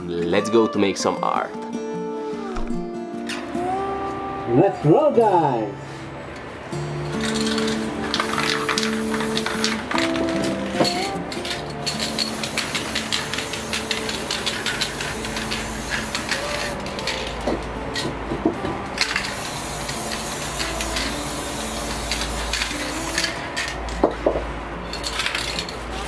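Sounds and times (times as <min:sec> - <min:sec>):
spray-paint can hissing: 0:07.2 - 0:17.4, 0:19.0 - 0:23.8.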